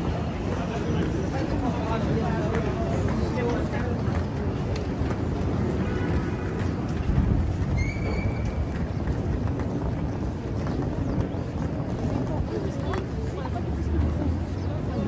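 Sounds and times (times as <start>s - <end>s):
traffic rumble: 0.0s - 15.0s
high squeal: 7.7s - 8.6s.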